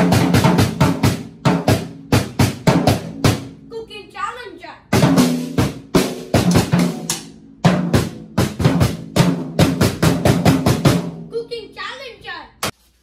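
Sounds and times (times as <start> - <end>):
snare drum and toms hits: 0.0 - 3.5, 5.0 - 11.1.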